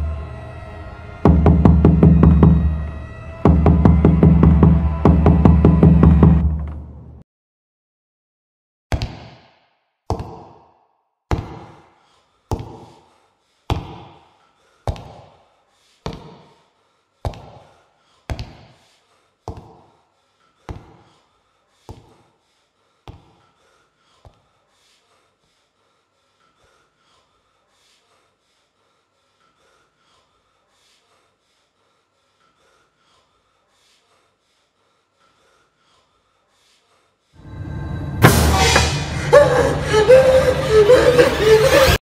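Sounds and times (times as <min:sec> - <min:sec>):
heavy knocks on a wooden door: 0:01.3 - 0:02.7, 0:03.5 - 0:06.7.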